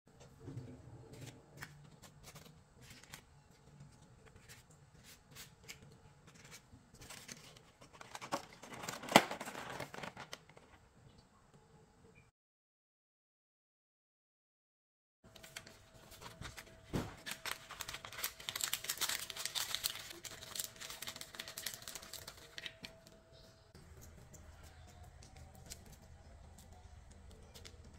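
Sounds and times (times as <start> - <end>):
paper liners rustling: 1.1 - 10.8, 15.3 - 23.2.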